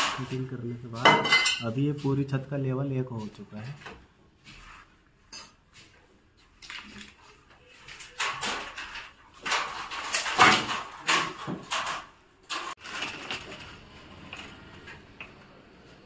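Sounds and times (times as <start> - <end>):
scraping and clattering metal: 7.6 - 15.0.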